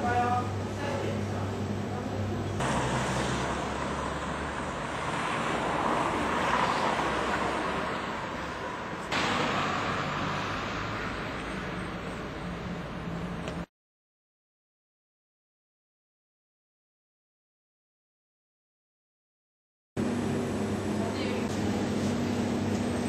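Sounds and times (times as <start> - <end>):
traffic hiss: 2.6 - 13.7.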